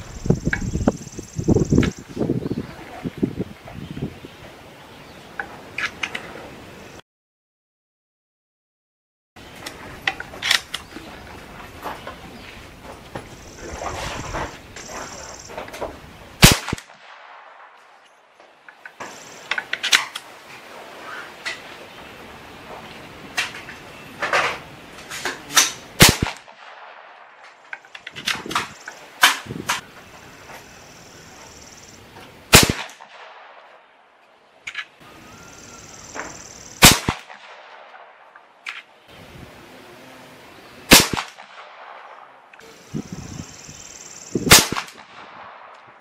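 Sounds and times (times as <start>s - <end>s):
air rifle shots: 16.4s - 17.8s, 25.6s - 27.6s, 32.5s - 33.8s, 36.8s - 38.4s, 40.9s - 42.3s, 44.4s - 46.0s.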